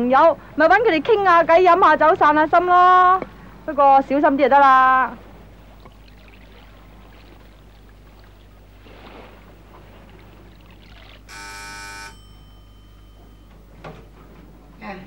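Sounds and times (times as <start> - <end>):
low hum and hiss: 0.0 - 15.0
electric doorbell buzzing: 11.3 - 13.7.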